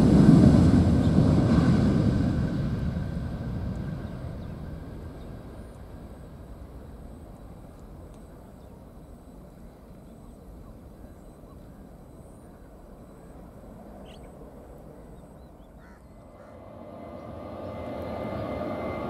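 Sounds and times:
jet engine rumble: 0.0 - 19.0.

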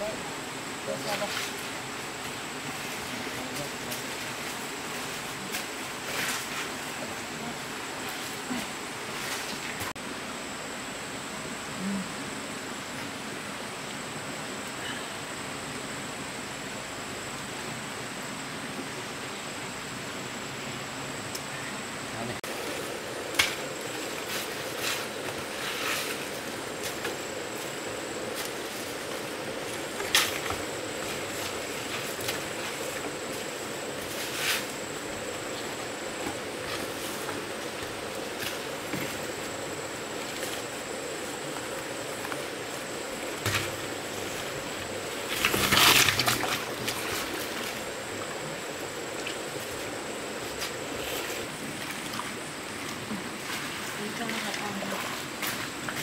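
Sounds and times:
water sloshing and trickling: 43.2 - 56.0.

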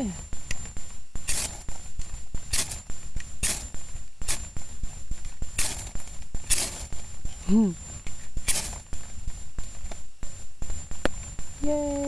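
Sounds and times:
ferro rod scrapes: 1.2 - 1.7.

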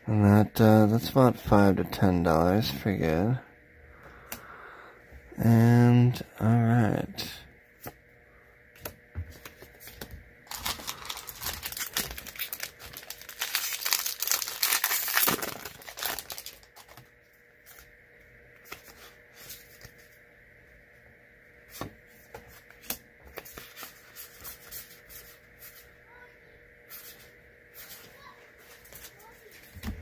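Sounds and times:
foil wrapper crinkling and tearing: 10.5 - 17.1.

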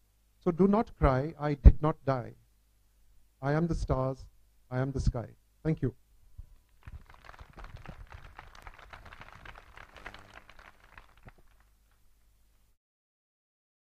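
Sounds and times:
faint audience applause: 6.8 - 12.0.

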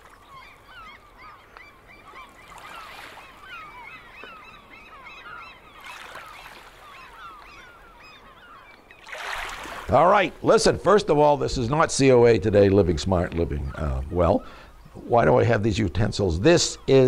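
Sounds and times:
flock of birds calling: 0.0 - 17.0.

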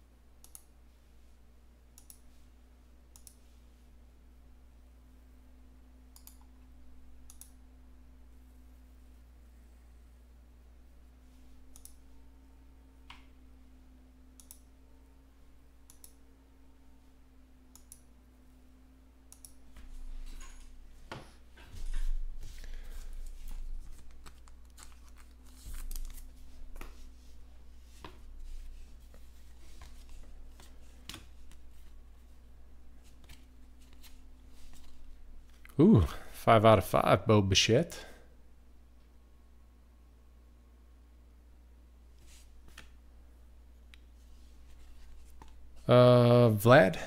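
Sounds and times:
trading cards and wrappers rustling: 22.4 - 27.2.

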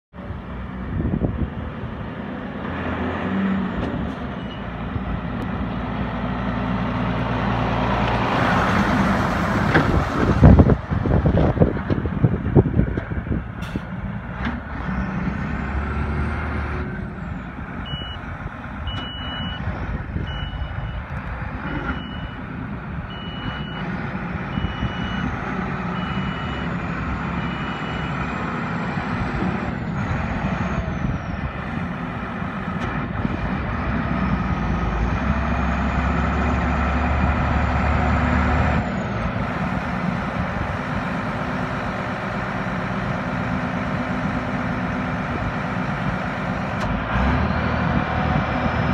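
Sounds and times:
diesel truck engine running: 0.2 - 48.9
reversing alarm beeping: 17.8 - 18.2, 18.9 - 19.6, 20.2 - 21.0, 21.9 - 22.4, 23.1 - 23.9, 25.9 - 28.2.

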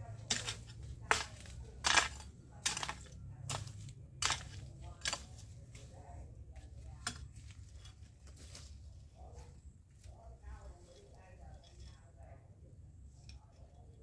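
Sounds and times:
hand tool scraping dry ground: 0.0 - 6.0, 6.6 - 8.9.

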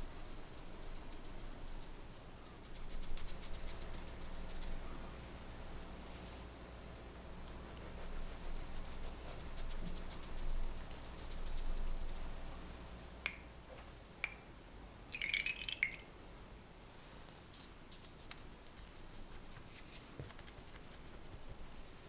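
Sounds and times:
light clinks of glass: 13.3 - 13.5, 14.2 - 14.5, 15.1 - 16.0
syrup dripping into glass cup: 15.1 - 16.1.

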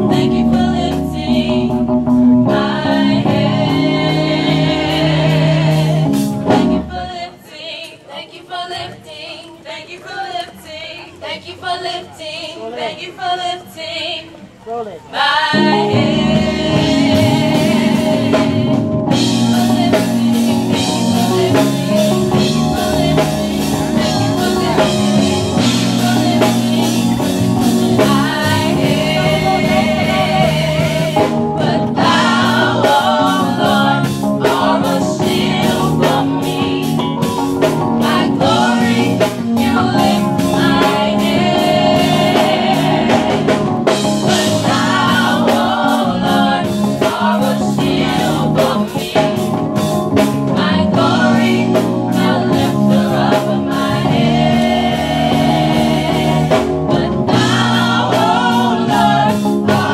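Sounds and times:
drums and band: 0.0 - 7.2, 15.5 - 59.9
group singing gospel: 0.0 - 59.9.

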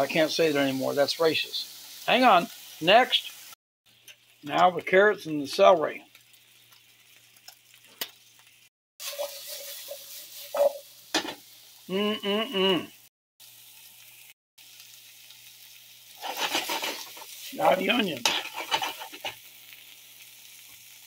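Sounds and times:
vegetables sizzling in oil: 0.0 - 21.0
stirring in a skillet: 5.6 - 11.8, 15.4 - 19.9.

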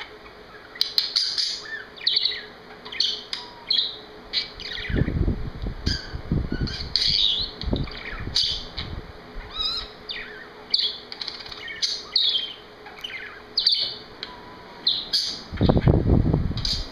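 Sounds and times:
budgerigar chirping and warbling: 0.0 - 5.1, 5.9 - 14.0, 14.8 - 15.9
fan hiss on microphone: 4.6 - 10.1, 14.1 - 16.9.

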